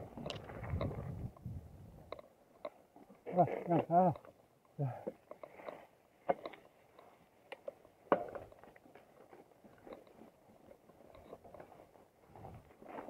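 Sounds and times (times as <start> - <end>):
bike knocks and rattles: 8.0 - 8.7.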